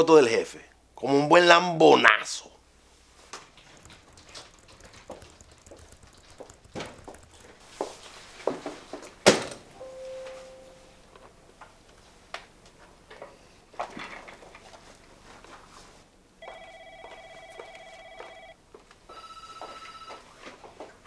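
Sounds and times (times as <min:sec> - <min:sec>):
small knocks and clicks: 0:03.3 - 0:09.2
brief steady tone: 0:09.8 - 0:11.1.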